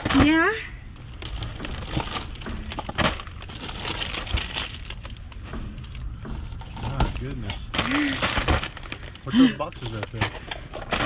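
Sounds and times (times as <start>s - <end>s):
plastic and cardboard rustling: 0.0s - 11.0s.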